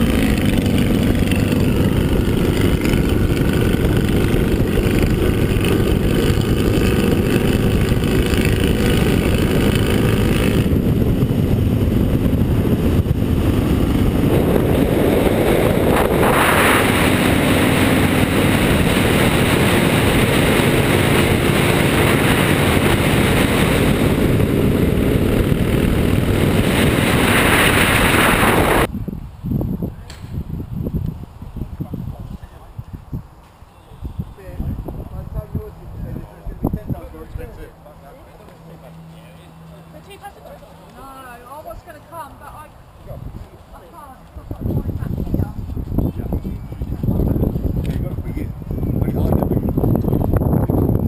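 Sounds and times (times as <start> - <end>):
motorcycle engine: 0.0 - 28.9
wind rush on microphone: 0.0 - 37.6, 42.9 - 51.0.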